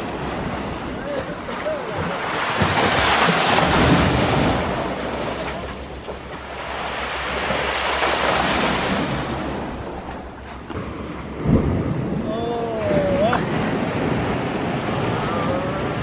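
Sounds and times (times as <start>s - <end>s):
waves splashing against rocks: 0.0s - 16.0s
wind rumble on microphone: 7.4s - 16.0s.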